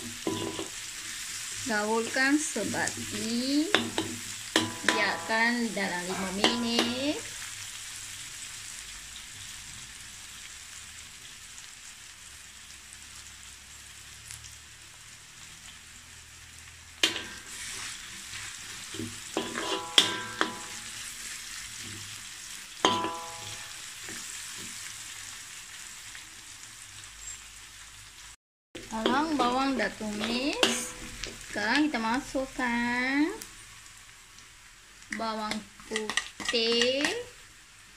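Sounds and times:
metal spatula striking wok: 0.0s - 0.8s, 2.9s - 7.3s, 17.0s - 17.6s, 18.9s - 21.1s, 22.8s - 24.2s, 28.8s - 31.4s
onions sizzling in oil: 0.0s - 37.9s.

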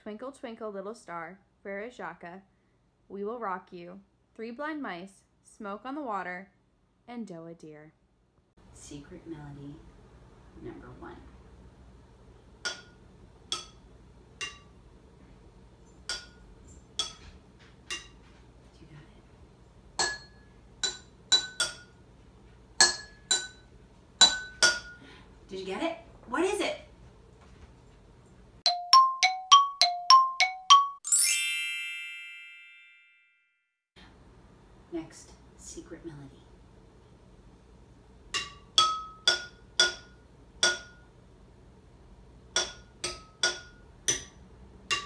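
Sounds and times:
spoon tapping glass jars melody: 12.7s - 13.8s, 14.4s - 14.8s, 16.0s - 17.3s, 28.7s - 32.4s, 38.4s - 41.0s, 42.6s - 45.0s
bell-like struck notes: 28.7s - 33.3s
bright shimmering chime: 31.1s - 33.1s.

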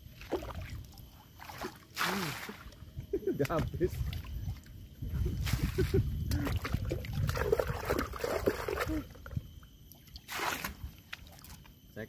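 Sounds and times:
water sloshing in plastic bucket: 0.2s - 2.8s, 5.4s - 9.4s, 10.0s - 11.7s.

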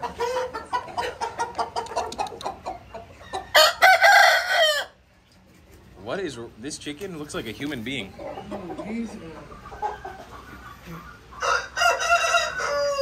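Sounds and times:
chickens clucking: 0.0s - 13.0s
rooster crowing: 3.5s - 5.0s, 11.4s - 13.0s.

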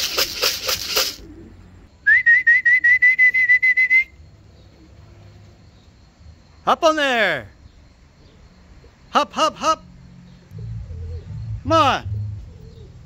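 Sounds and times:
person whistling a trill: 2.0s - 4.1s.

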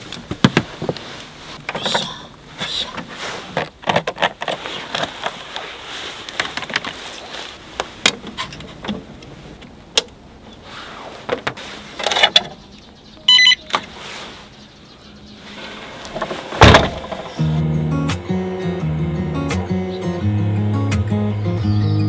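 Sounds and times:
clicks and knocks of handling: 2.9s - 5.7s, 6.3s - 7.2s
short electronic beep: 13.2s - 13.7s.

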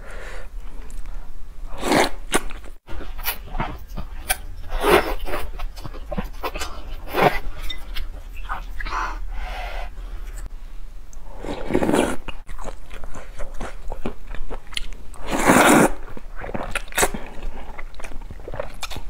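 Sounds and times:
slurping noodles: 1.7s - 3.7s, 11.4s - 12.4s, 15.2s - 17.6s.

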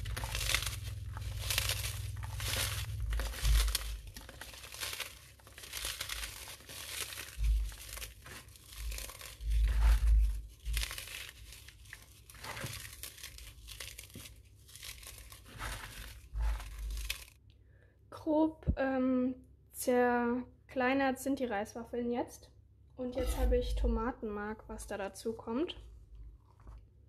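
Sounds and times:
rice cakes crackling and crunching: 0.0s - 17.4s.

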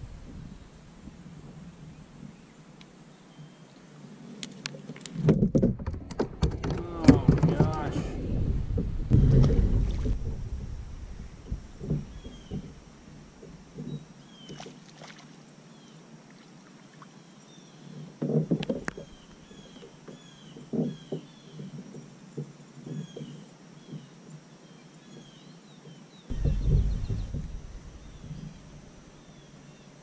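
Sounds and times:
loud low rumble: 0.0s - 1.2s, 6.3s - 13.7s, 26.3s - 29.6s
fish splashing: 6.0s - 13.8s, 14.5s - 15.3s, 26.3s - 29.8s
bird chirping: 11.2s - 12.9s, 24.7s - 30.0s.

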